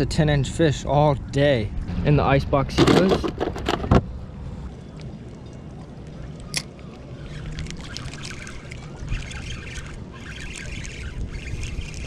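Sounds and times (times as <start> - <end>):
low rumble: 1.6 - 5.3.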